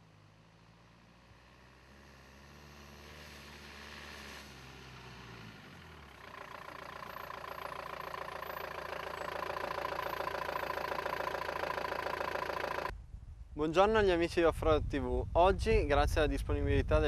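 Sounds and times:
diesel engine running: 0:00.0 - 0:12.9.

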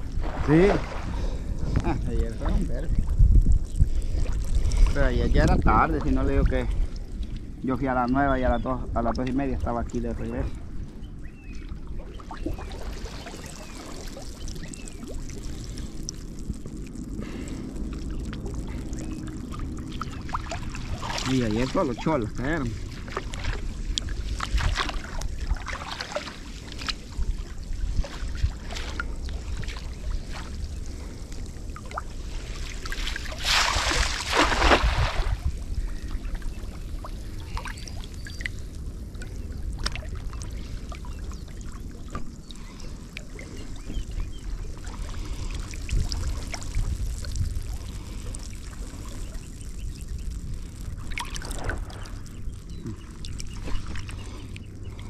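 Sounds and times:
loud splash: 0:00.0 - 0:01.5, 0:32.6 - 0:35.5
steady low rumble: 0:00.0 - 0:55.0
water splashing and trickling: 0:00.0 - 0:55.0.

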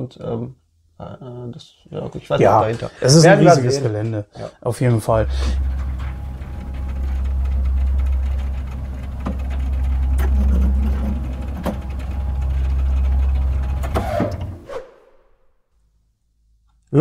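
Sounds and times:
lift motor hum: 0:05.0 - 0:14.8
lift clicks and clanks: 0:05.1 - 0:14.6.

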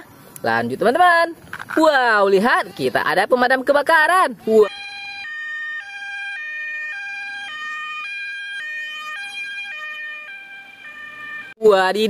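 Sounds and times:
two-tone fire truck siren: 0:04.7 - 0:11.6.

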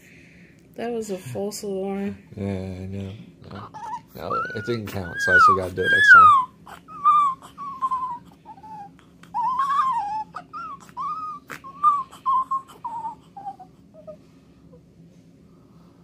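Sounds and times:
newborn baby squeaky cries: 0:03.7 - 0:14.2.

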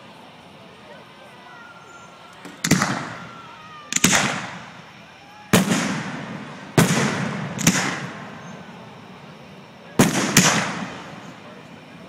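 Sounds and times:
firework shells bursting: 0:02.4 - 0:11.7.

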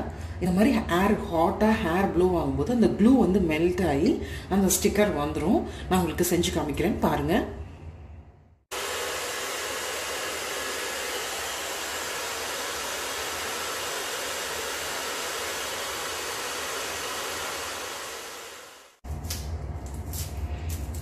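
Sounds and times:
hair dryer blowing hot air: 0:08.7 - 0:19.0.

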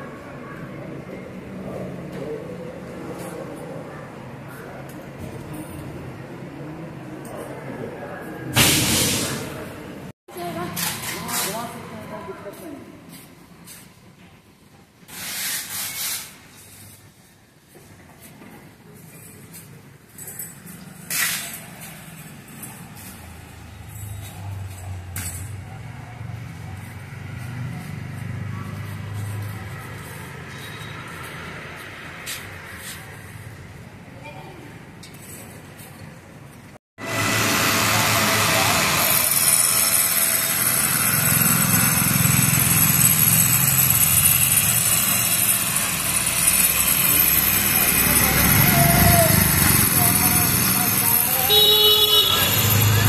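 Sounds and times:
vehicle engine rumble: 0:20.7 - 0:34.1
motor engine running: 0:37.0 - 0:51.5.

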